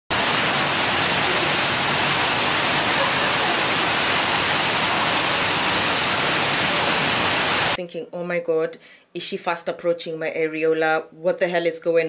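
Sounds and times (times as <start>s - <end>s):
water cascading into pool: 0.1s - 7.8s.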